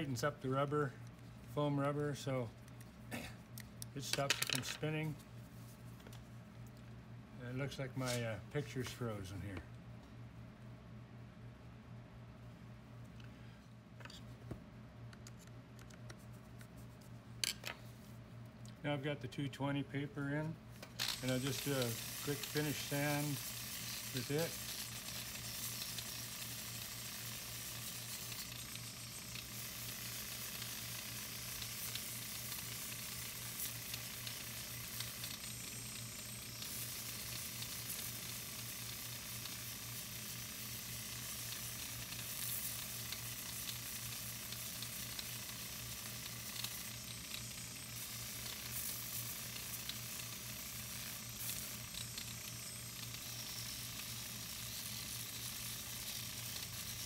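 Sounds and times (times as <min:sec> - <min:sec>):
sandpaper sanding wood hiss: 0:21.2 - 0:35.7.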